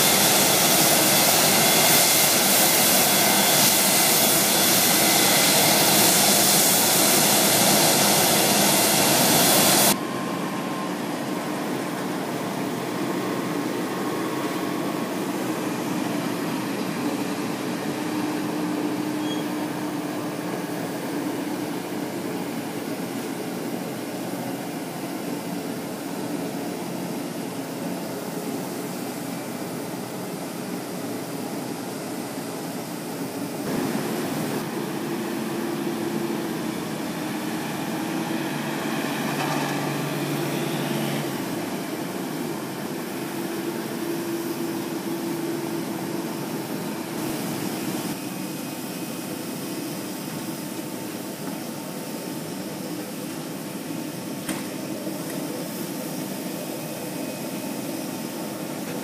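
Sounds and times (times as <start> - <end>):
jet engine hiss and whine: 0.0 - 59.0.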